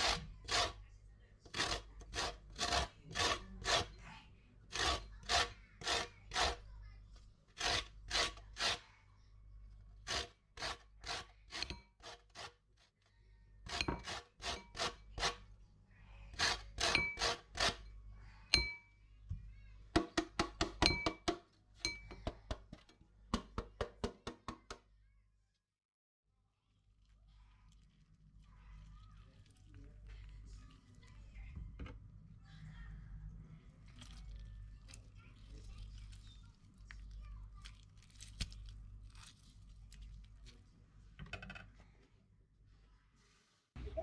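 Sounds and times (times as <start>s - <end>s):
peel grating on metal grater: 1.5s - 4.0s, 4.7s - 6.6s, 7.6s - 8.8s, 10.0s - 12.6s, 13.7s - 15.4s, 16.3s - 17.9s.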